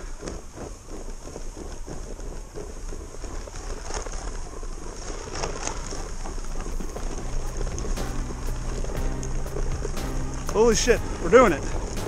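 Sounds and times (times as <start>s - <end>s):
crunching and scraping in snow: 0.0s - 12.0s
steady low rumble: 5.8s - 12.0s.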